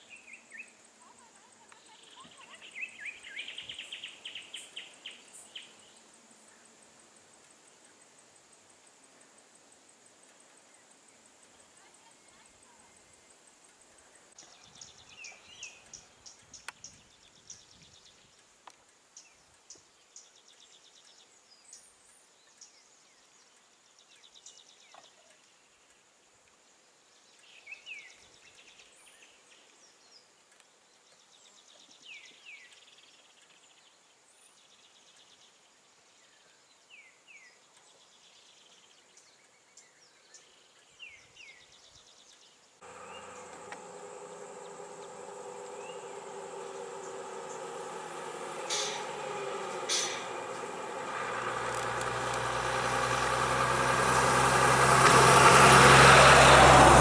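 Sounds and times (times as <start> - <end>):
faint hiss: 0.0 - 57.0
small clicks: 51.4 - 52.7.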